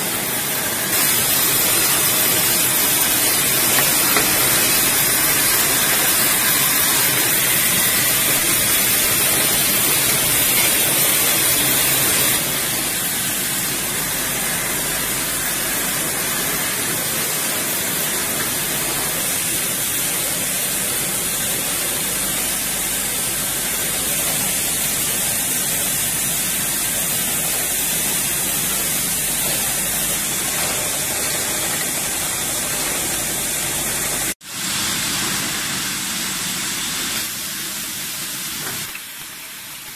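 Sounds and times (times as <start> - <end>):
bottle filling machine running: 0.0 - 39.9
water spraying hiss: 0.8 - 39.9.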